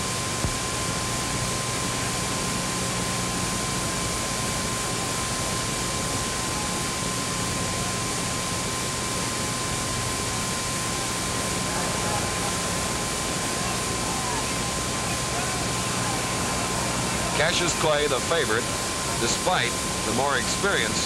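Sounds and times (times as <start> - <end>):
broad recording hiss: 0.0 - 21.0
low hum: 7.6 - 21.0
thin steady high tone: 10.1 - 21.0.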